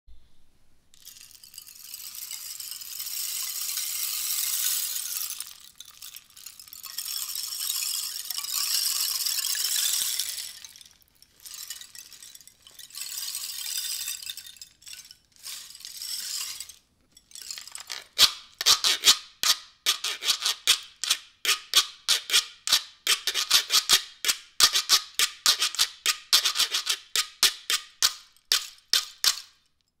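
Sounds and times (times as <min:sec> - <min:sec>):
rattle shaking: 0:00.9 - 0:29.8
seeds pouring in rain stick: 0:01.0 - 0:18.1.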